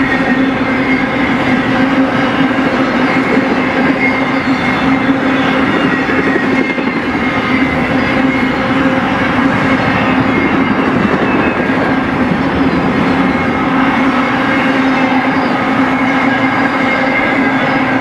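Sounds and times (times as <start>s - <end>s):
freight train wheels on rail: 0.0s - 18.0s.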